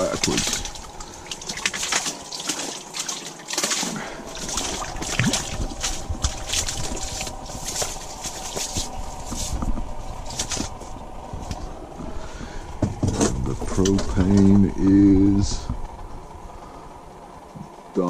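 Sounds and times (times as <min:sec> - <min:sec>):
water dripping: 0:00.0 - 0:09.0
water splashing and sloshing: 0:00.0 - 0:17.7.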